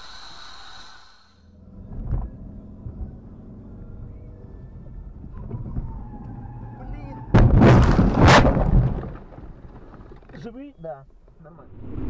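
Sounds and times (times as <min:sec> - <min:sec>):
road hiss: 0:00.0 - 0:01.5
vehicle low rumble: 0:01.4 - 0:08.2, 0:08.8 - 0:12.0
thump: 0:07.3 - 0:09.2.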